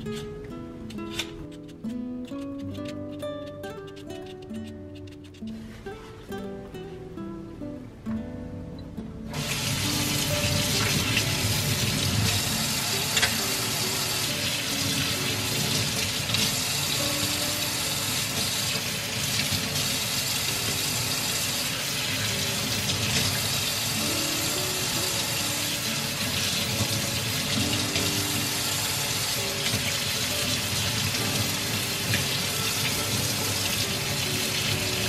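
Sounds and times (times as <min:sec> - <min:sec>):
tap water running into sink: 0:09.3 - 0:35.0.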